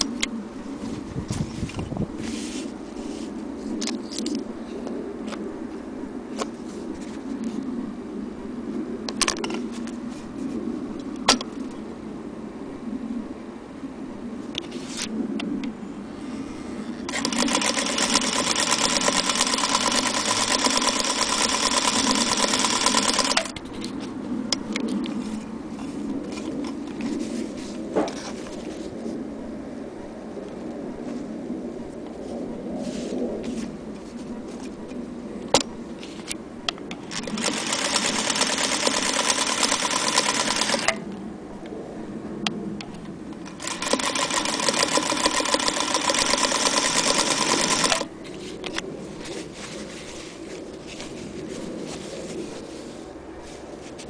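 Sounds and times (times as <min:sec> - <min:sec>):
sewing machine stitching: 0:17.1 - 0:23.4, 0:37.2 - 0:40.9, 0:43.5 - 0:48.0.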